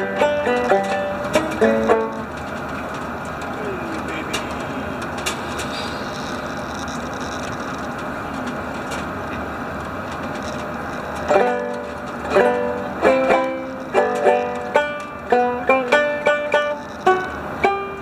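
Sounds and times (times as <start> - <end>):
banjo picking: 0.0 - 5.5, 11.2 - 18.0
ferry engine drone: 0.0 - 18.0.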